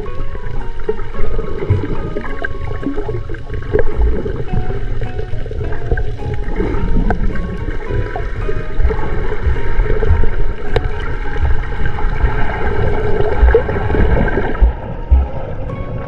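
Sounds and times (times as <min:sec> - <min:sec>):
water rushing past boat: 0:00.0 - 0:16.0
wind buffeting microphone: 0:05.7 - 0:16.0.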